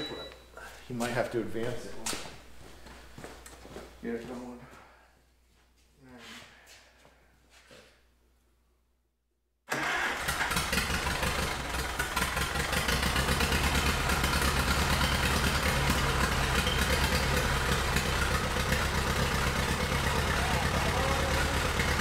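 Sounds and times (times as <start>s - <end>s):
tractor engine idling: 9.7s - 22.0s.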